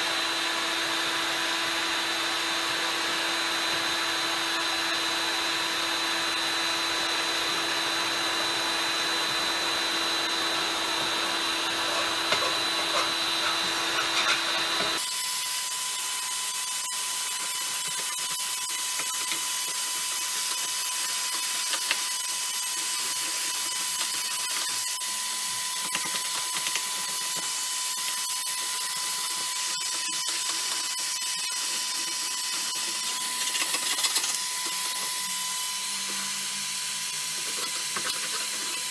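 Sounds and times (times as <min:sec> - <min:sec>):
heat gun blowing: 0:00.0 - 0:38.9.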